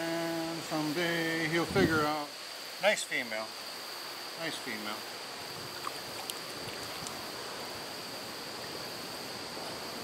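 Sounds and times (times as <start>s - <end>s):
high insect drone: 0.0s - 10.0s
river water washing: 5.0s - 10.0s
faint ticks: 5.8s - 7.2s.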